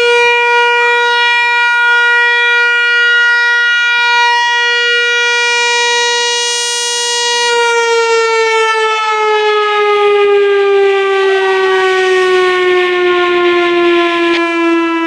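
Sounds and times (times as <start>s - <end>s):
warning siren tone: 0.0s - 15.0s.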